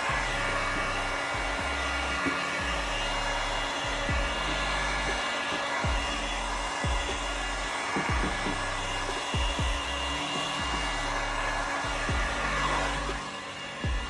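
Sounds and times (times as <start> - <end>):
heat gun blowing: 0.0 - 14.0
low thumps dropping in pitch: 2.6 - 5.2, 5.8 - 13.2.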